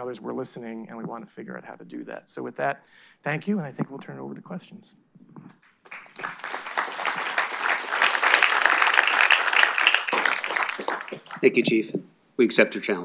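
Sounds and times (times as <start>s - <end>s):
audience applauding: 5.6s - 11.6s.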